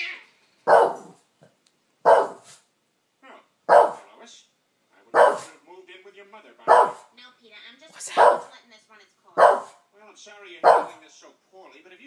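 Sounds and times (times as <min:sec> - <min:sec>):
dog barking: 0:00.7 - 0:01.2, 0:02.0 - 0:02.6, 0:03.7 - 0:04.1, 0:05.1 - 0:05.5, 0:06.7 - 0:07.1, 0:08.0 - 0:08.5, 0:09.4 - 0:09.8, 0:10.6 - 0:11.0.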